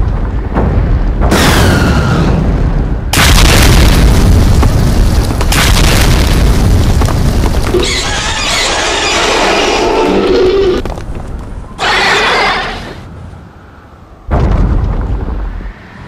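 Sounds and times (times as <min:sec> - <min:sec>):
deep explosion booms: 0:00.1 - 0:07.8, 0:14.3 - 0:15.6
monster screech: 0:01.3 - 0:02.4, 0:07.7 - 0:10.8, 0:11.8 - 0:13.0.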